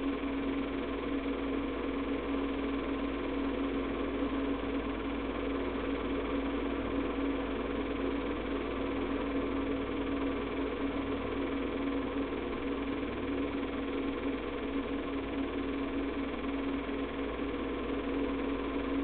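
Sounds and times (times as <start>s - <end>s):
film projector humming: 0.0s - 19.0s.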